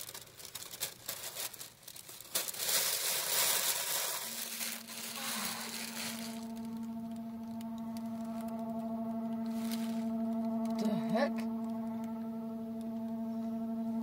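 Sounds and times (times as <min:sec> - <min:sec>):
paper crinkling and rustling: 0:00.0 - 0:08.6
low horn-like tone: 0:03.0 - 0:14.0.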